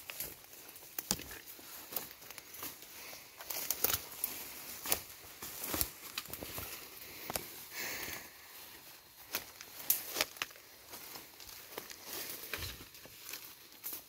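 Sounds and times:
footsteps on dry leaves and twigs: 0.0s - 14.0s
plants rustling: 0.0s - 14.0s.

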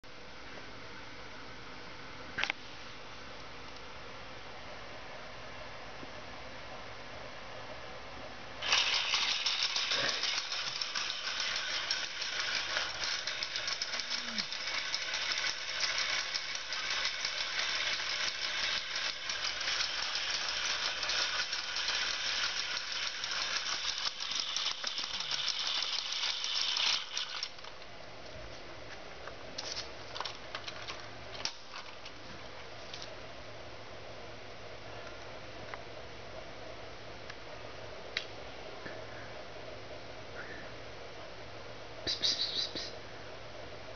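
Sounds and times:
toy motor and gears rattling: 8.6s - 27.8s.

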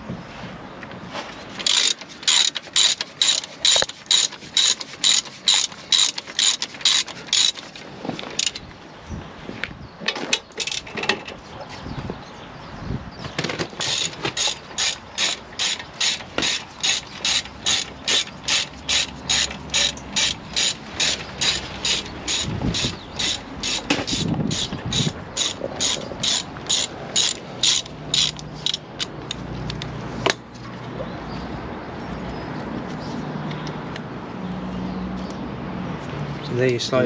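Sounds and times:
ratchet wrench clicking: 1.6s - 7.7s, 13.8s - 29.9s.

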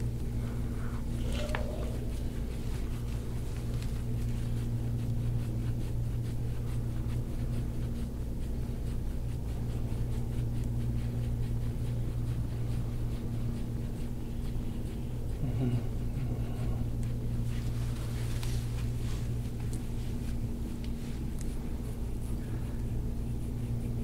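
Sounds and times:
low hum: 0.0s - 24.0s
murmured voice: 1.2s - 2.4s, 15.4s - 16.9s.

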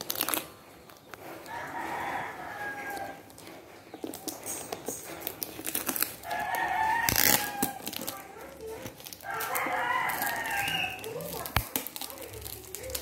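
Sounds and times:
plastic wrap crinkling: 0.0s - 13.0s
rooster crowing: 1.5s - 3.3s, 6.2s - 8.0s, 9.2s - 11.2s.

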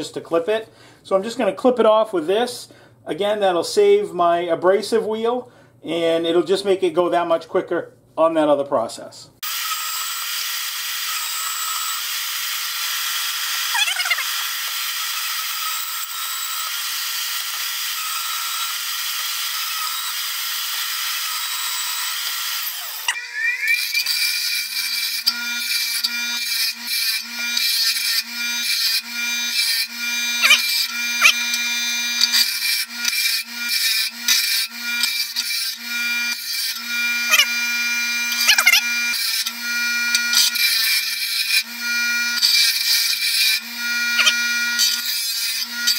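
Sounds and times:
bandsaw cutting steel: 9.4s - 45.9s
grinder wheel grinding steel: 9.4s - 45.9s.

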